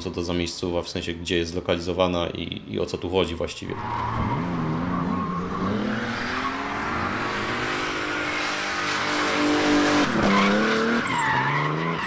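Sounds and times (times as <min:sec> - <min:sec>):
car engine at high revs: 0:03.8 - 0:12.0.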